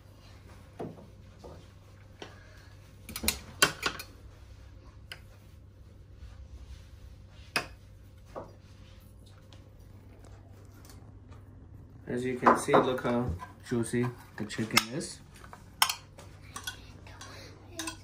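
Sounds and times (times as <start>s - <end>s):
metal spoons clinking on a plate: 15.8s - 18.0s.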